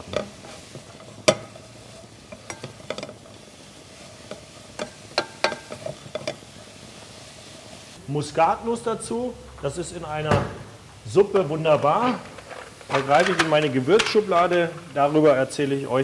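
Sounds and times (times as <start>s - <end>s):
wooden spoon scraping a pot: 0.0s - 7.9s
vegetables sizzling in oil: 0.0s - 16.0s.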